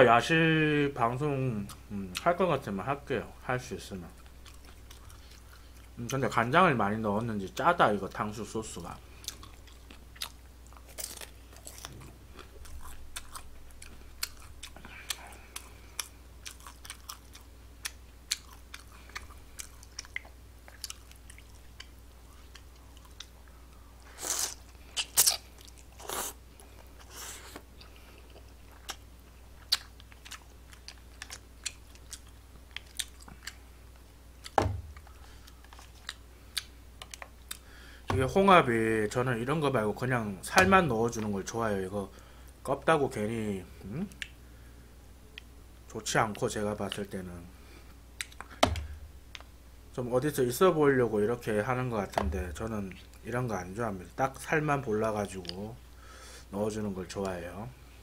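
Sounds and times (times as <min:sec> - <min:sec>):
person chewing: 0:04.2 - 0:06.0, 0:09.1 - 0:37.8, 0:48.2 - 0:49.5
thump: 0:34.6 - 0:34.9, 0:48.6 - 0:49.0, 0:52.2 - 0:52.5.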